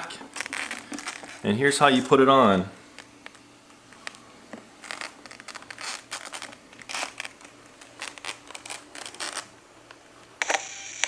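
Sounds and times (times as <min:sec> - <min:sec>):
faint steady hum: 0:00.0 - 0:11.0
plastic helmet scraping on hair: 0:04.8 - 0:09.5.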